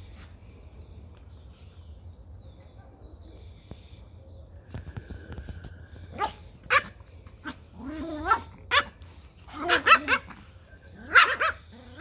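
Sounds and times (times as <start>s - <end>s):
small dogs barking and yipping: 6.0s - 12.0s.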